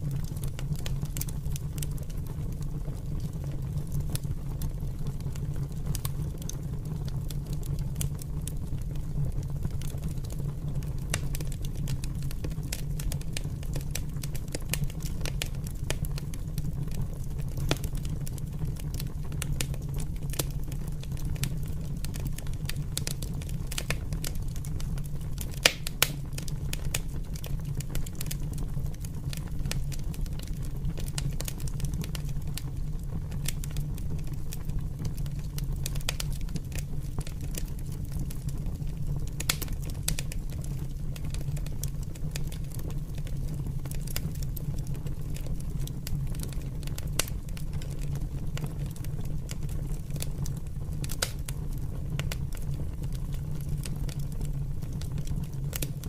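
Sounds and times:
fire crackling and popping: 0:00.0 - 0:56.0
low rumble of flames: 0:00.0 - 0:56.0.

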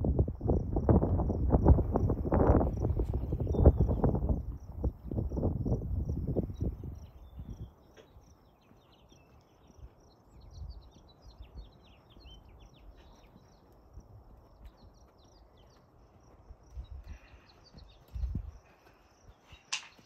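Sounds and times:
wind rumbling on microphone: 0:00.0 - 0:19.7.

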